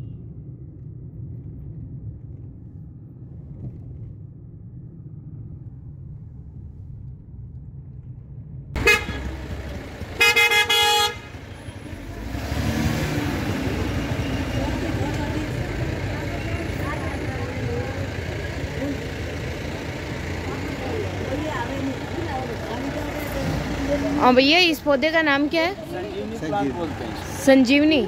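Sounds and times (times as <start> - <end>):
car engine and road rumble: 0.0 - 28.0
street noise: 0.0 - 28.0
vehicle horn honking: 8.8 - 11.8.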